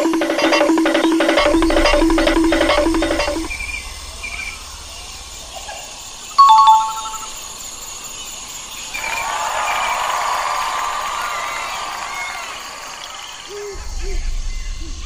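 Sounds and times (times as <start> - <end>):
two-note chime: 6.4 - 7.3
crowd cheering: 8.9 - 13.9.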